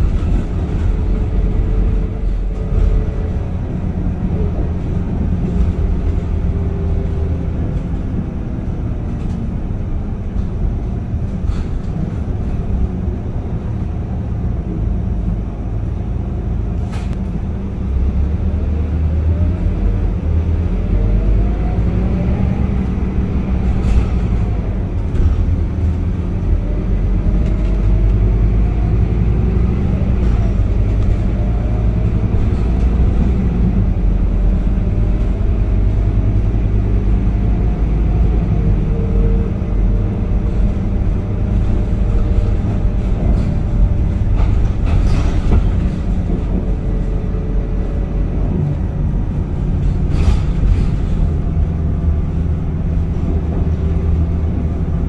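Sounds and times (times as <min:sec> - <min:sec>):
bus engine and road rumble: 0:00.0 - 0:55.0.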